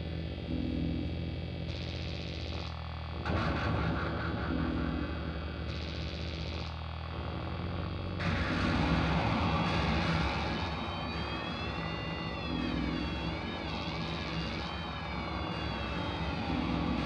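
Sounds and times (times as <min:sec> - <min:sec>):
low steady drone: 0:00.0 - 0:17.0
dense noise wash: 0:08.2 - 0:17.0.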